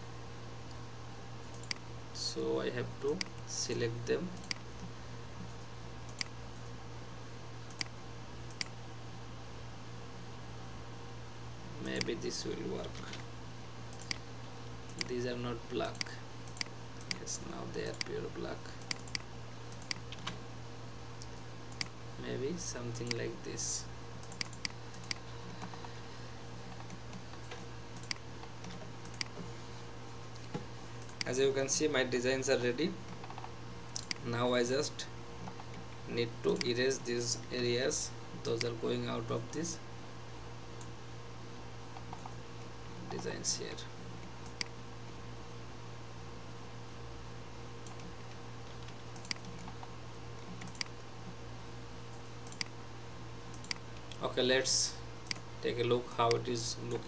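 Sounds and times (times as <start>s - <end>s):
steady low hum: 0.0s - 57.0s
sharp computer clicks: 1.5s - 1.9s, 3.1s - 3.5s, 4.3s - 4.7s, 6.0s - 6.7s, 7.7s - 8.8s, 11.9s - 12.2s, 13.9s - 14.3s, 14.9s - 20.3s, 21.2s - 22.0s, 23.0s - 23.2s, 24.2s - 25.2s, 26.8s - 28.3s, 29.0s - 29.4s, 33.2s - 34.3s, 36.5s - 36.8s, 44.4s - 44.8s, 48.8s - 49.8s, 50.5s - 51.0s, 52.1s - 52.8s, 53.5s - 54.2s, 55.2s - 55.5s, 56.2s - 56.5s.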